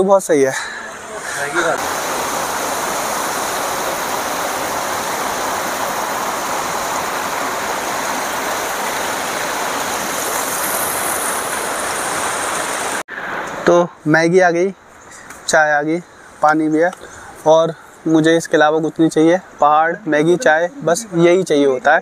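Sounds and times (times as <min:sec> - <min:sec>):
waterfall water rushing: 0:00.6 - 0:13.7.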